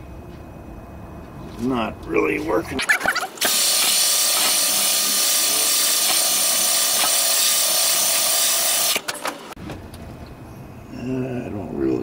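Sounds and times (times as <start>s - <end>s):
drill grinding metal: 3.4s - 9.0s.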